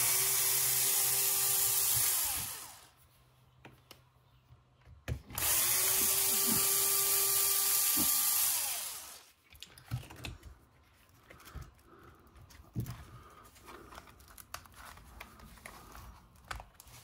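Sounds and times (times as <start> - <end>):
power drill running: 0.0 - 2.9, 5.3 - 9.3.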